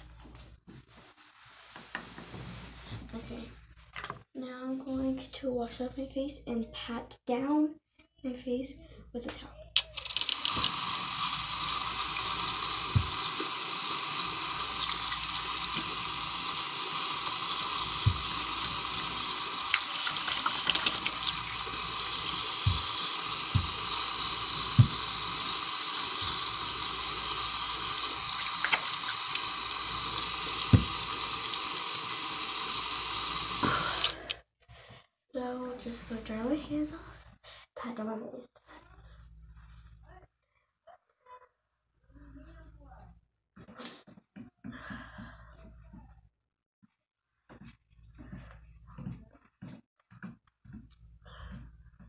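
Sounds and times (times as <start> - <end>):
sink tap running: 9.8 - 34.4
face rinsing under tap: 9.9 - 34.4.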